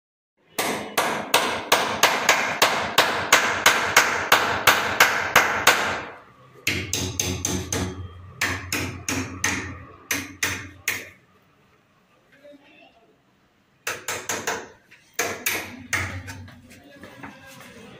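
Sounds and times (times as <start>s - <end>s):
hammer blows on wooden door frame: 0.5s - 11.2s.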